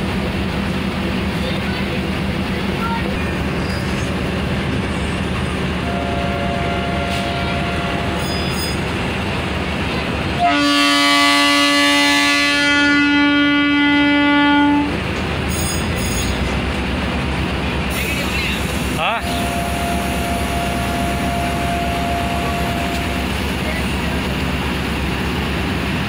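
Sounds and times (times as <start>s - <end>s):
passenger train rumbling past: 0.0s - 26.0s
train horn blast: 5.8s - 8.4s, 10.4s - 15.0s, 19.2s - 23.2s.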